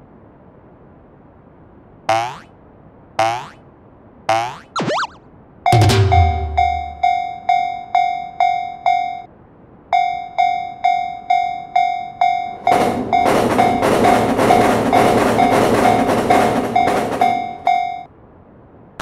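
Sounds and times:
railroad crossing bell ringing: 5.7s - 9.3s, 9.9s - 18.1s
loud rattling clatter: 12.6s - 17.6s.

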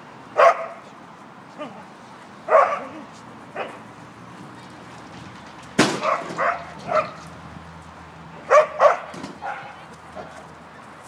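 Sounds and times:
dog barking: 0.4s - 0.8s, 2.5s - 3.8s, 6.0s - 7.2s, 8.4s - 10.4s.

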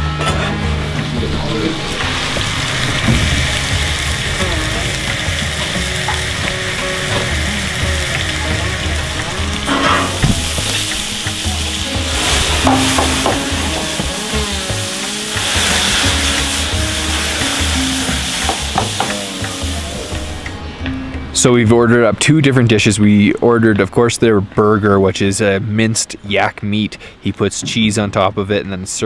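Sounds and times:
meat sizzling in a frying pan: 1.9s - 20.6s.

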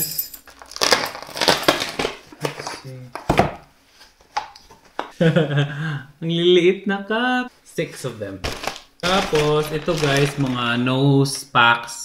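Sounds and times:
packing material rustling: 0.4s - 2.7s, 8.4s - 10.8s.

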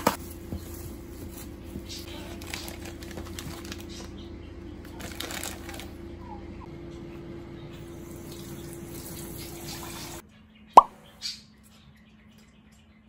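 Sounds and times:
plastic bag crinkling: 2.1s - 4.1s, 4.9s - 6.0s.

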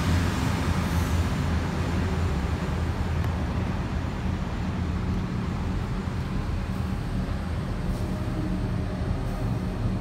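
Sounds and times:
locomotive engine rumble: 0.0s - 10.0s.

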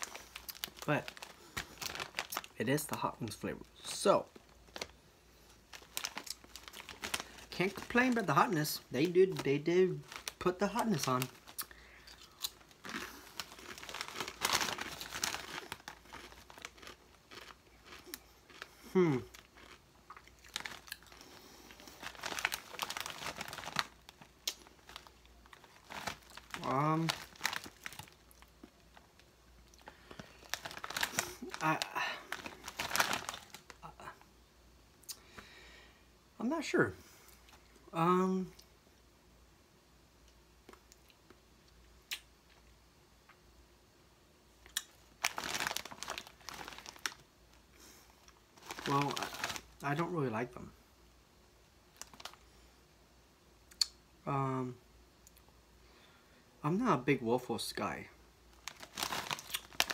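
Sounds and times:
chip bag crinkling: 0.0s - 34.2s, 44.7s - 50.1s, 51.9s - 52.4s, 58.5s - 59.9s.

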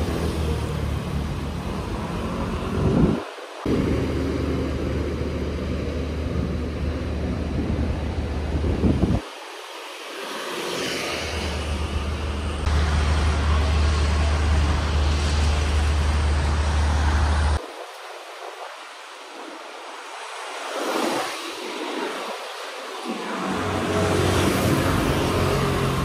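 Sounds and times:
street traffic: 0.0s - 18.3s, 22.9s - 26.0s
steady low rumble: 2.8s - 9.2s.

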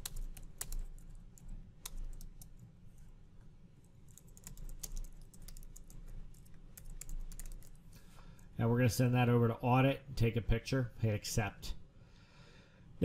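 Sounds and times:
computer keyboard typing: 0.0s - 2.6s, 4.0s - 7.9s
low steady background hum: 0.0s - 13.0s.

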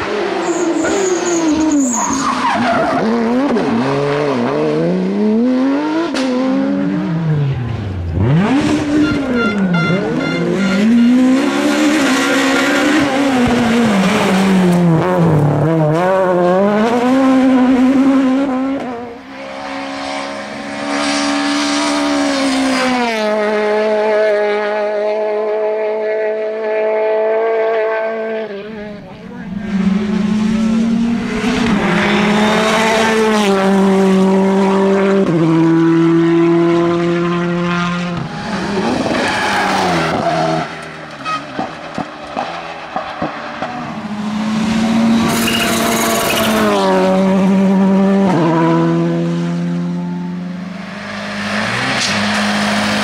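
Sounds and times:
rally car engines at full throttle: 0.0s - 53.0s
tyre squeal: 0.4s - 3.2s, 39.0s - 41.7s, 45.2s - 46.8s.

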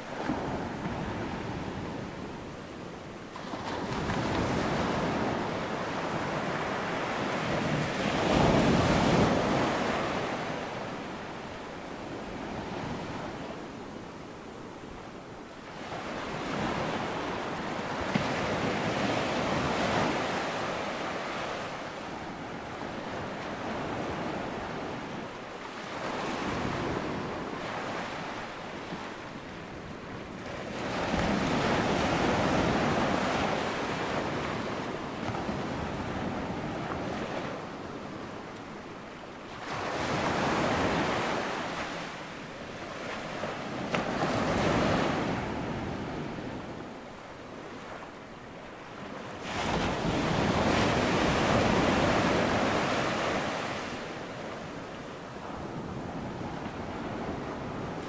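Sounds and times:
ocean waves breaking: 39.5s - 58.0s.

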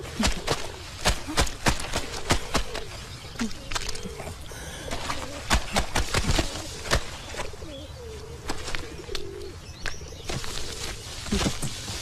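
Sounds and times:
low wavering coo: 6.2s - 11.5s.

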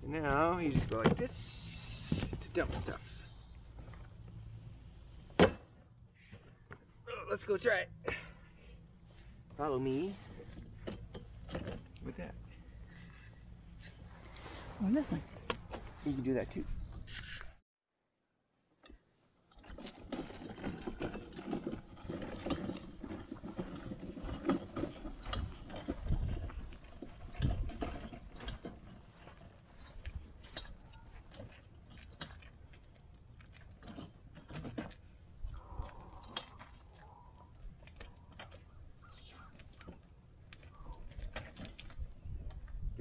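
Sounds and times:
cart rattling on concrete: 19.5s - 35.2s.

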